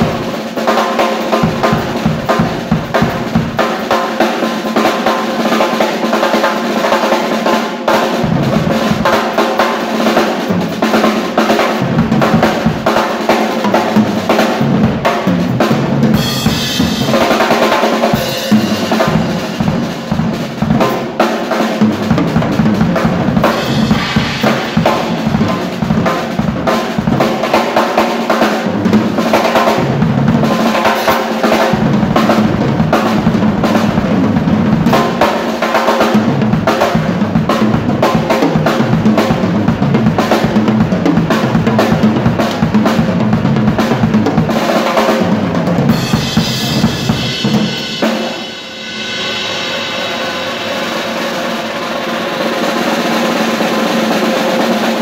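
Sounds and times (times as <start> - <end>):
rock drum kit played hard: 0.0 - 55.0
crash cymbals: 23.5 - 26.5, 46.0 - 53.9.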